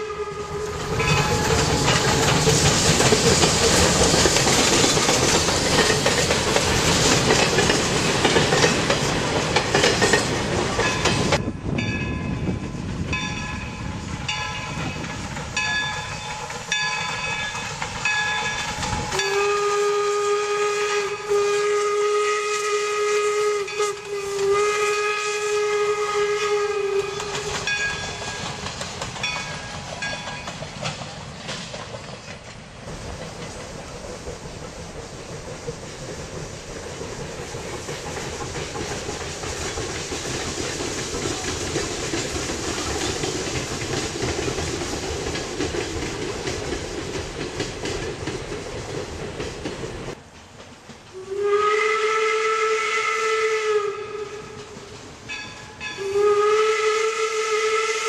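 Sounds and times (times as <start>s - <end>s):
steam whistle blasts: 0.0s - 2.4s, 18.4s - 28.4s, 51.1s - 54.8s, 55.7s - 58.0s
train running noise: 0.0s - 58.0s.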